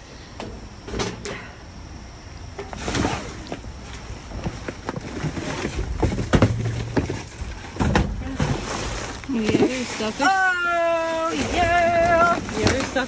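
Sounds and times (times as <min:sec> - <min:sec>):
rustling of trash bags: 0:02.7 - 0:13.0
knocks and bumps in dumpster: 0:04.3 - 0:09.9.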